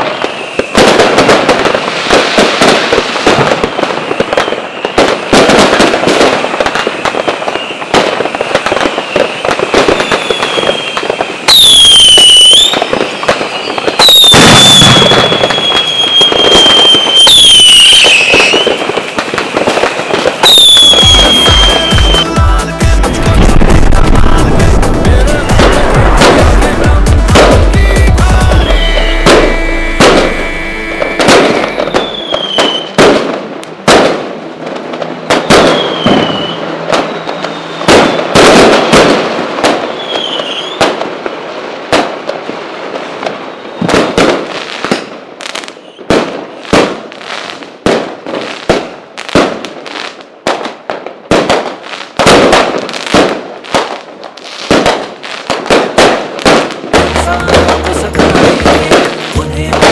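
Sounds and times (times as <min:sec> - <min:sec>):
falling firework whistles: 0:00.0 - 0:22.4, 0:28.4 - 0:33.3, 0:35.3 - 0:42.0, 0:42.9 - 0:47.8
firecrackers banging: 0:00.0 - 0:59.9.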